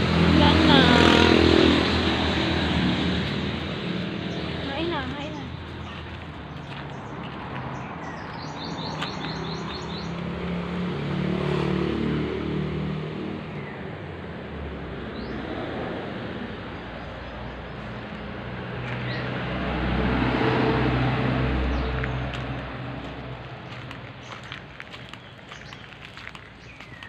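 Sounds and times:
vehicle engine passing: 0.0s - 26.9s
bird chirps: 7.8s - 10.2s.

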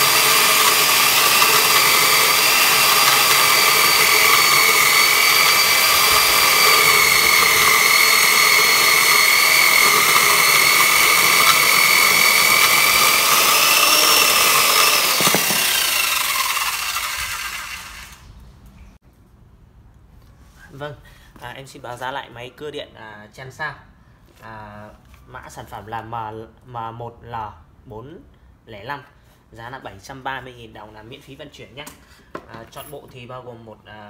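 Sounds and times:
electric chainsaw cutting log: 0.0s - 18.2s.

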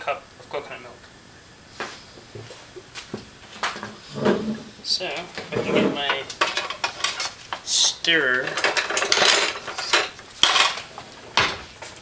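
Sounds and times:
utensils clattering in a drawer: 8.4s - 11.5s.

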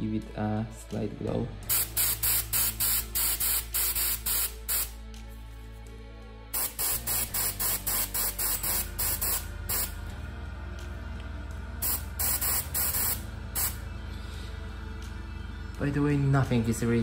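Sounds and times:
airbrush spraying hiss: 1.6s - 5.0s, 6.6s - 10.0s, 11.8s - 13.8s.

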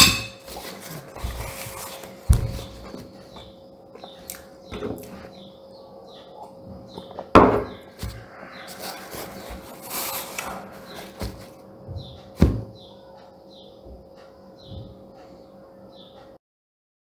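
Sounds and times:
paper napkin rustling: 0.4s - 3.1s, 8.0s - 11.6s
glass knocking on table: 7.3s - 7.8s.

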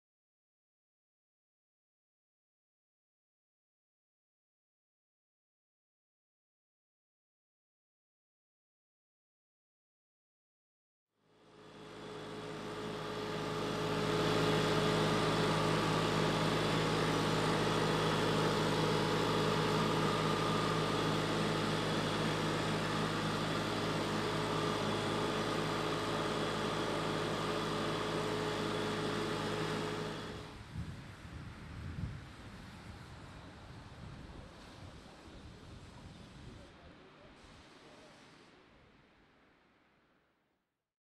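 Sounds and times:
waste compactor engine humming: 11.4s - 31.3s.

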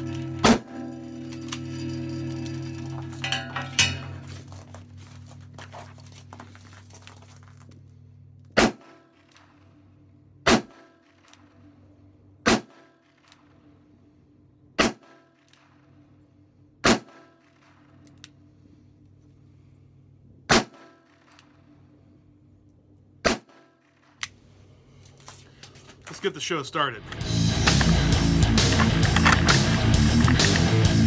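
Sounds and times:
background music: 0.0s - 4.1s, 27.1s - 31.0s.

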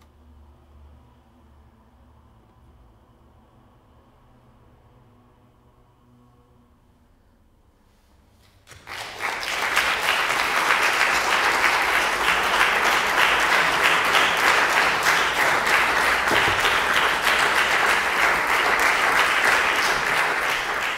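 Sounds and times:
audience applauding: 8.7s - 20.9s.

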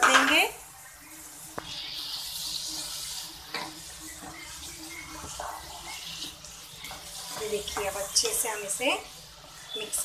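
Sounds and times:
gravy sizzling and bubbling: 0.0s - 10.0s.

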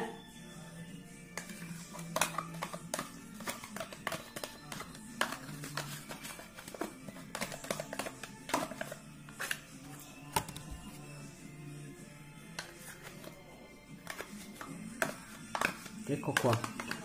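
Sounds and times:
background music with low notes: 0.0s - 17.0s
spoon scraping plastic pot: 1.3s - 11.0s, 12.5s - 13.4s, 14.0s - 17.0s.

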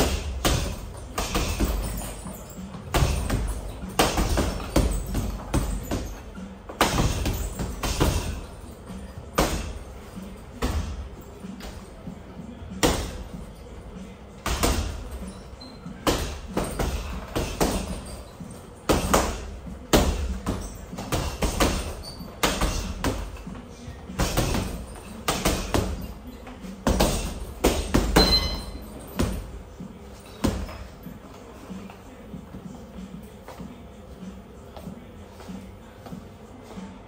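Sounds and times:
gloves punching heavy bag: 0.0s - 8.5s, 18.9s - 23.4s, 24.2s - 26.1s.

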